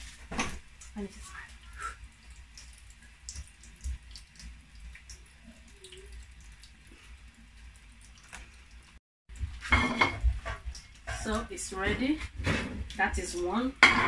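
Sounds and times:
dishes and frying pan clattering: 9.6s - 12.9s, 13.8s - 14.0s.

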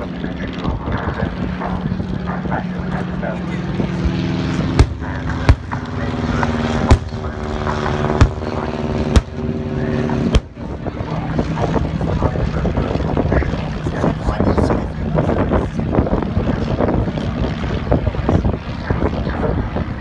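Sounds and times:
propeller planes droning: 0.0s - 20.0s
sharp airburst bangs: 4.5s - 10.7s.

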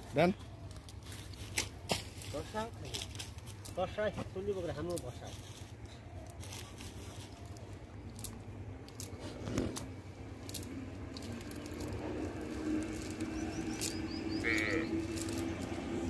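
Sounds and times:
high bird chirps: 13.1s - 15.7s.

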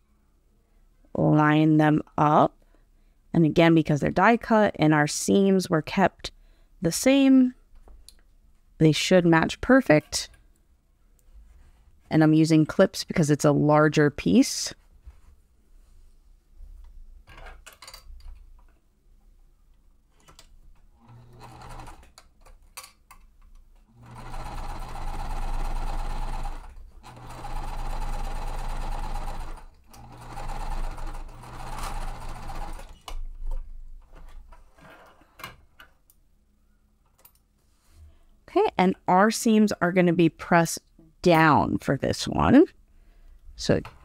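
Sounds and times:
sewing machine stitching: 21.0s - 22.2s, 23.9s - 33.1s.

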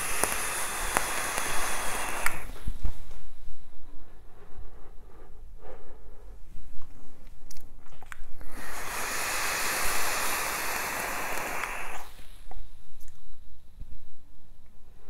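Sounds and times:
vape hissing: 0.0s - 2.9s, 8.4s - 12.8s.

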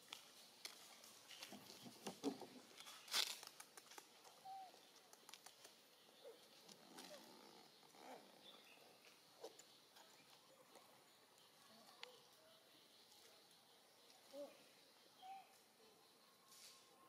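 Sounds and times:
faint squeaky calls: 4.3s - 5.1s, 6.0s - 17.0s.

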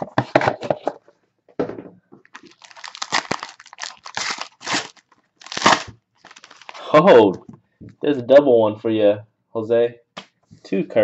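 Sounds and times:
foil wrappers crinkling: 2.3s - 7.2s
cards rustling: 2.3s - 7.4s.

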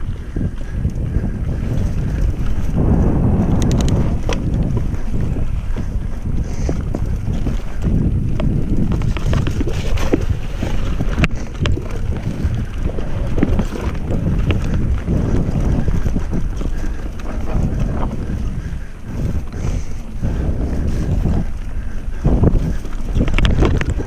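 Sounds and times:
bike clicks and rattles: 0.0s - 24.0s
low tyre rumble: 0.0s - 24.0s
wind on microphone: 0.0s - 24.0s.

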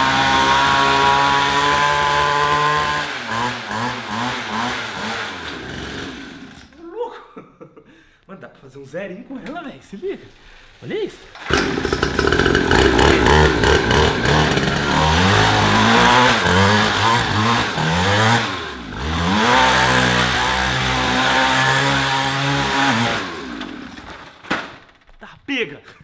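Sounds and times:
small dirt bike engine revving: 0.0s - 6.8s, 11.3s - 24.4s.

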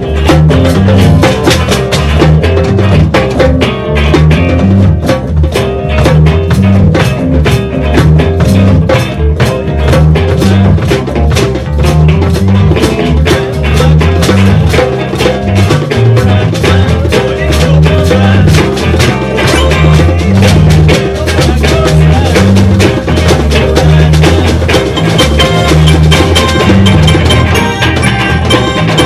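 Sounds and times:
bass line: 0.0s - 29.0s
drum kit beat: 0.0s - 29.0s.

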